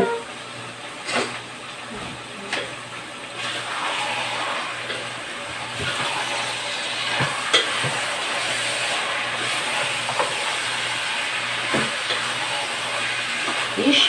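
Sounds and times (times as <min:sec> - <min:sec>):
meat sizzling in a pot: 0:02.9 - 0:14.0.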